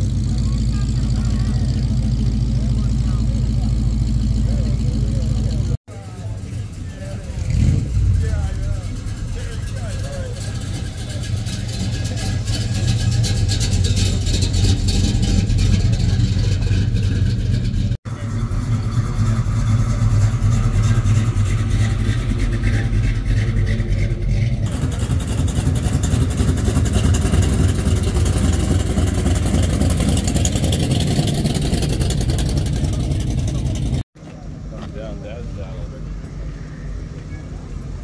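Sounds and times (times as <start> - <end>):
vehicle engine running: 0.0 - 38.0
voices in background: 0.1 - 17.0, 18.1 - 24.7, 32.4 - 38.0.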